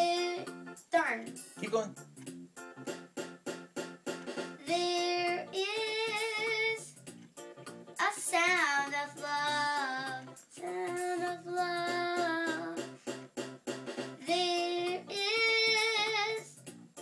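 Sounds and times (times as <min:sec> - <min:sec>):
electronic keyboard with beat: 0:00.0 - 0:17.0
girl singing long notes: 0:04.6 - 0:06.9, 0:08.0 - 0:12.8, 0:14.2 - 0:16.5.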